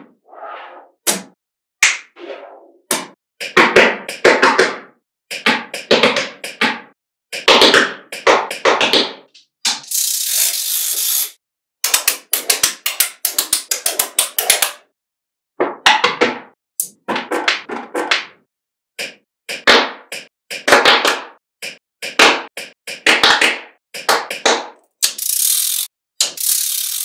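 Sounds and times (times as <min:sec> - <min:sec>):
magnetic balls clicking: 0:25.0 - 0:27.0.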